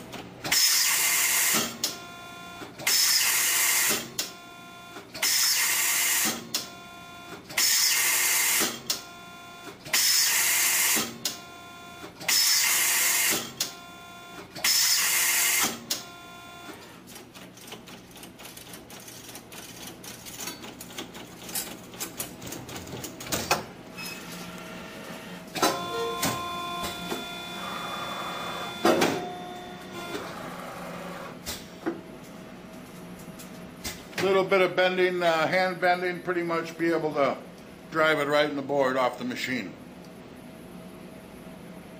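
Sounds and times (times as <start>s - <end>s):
machine clicking and whirring: 14.4s - 24.6s
machine hiss and whine bursts: 24.2s - 31.4s.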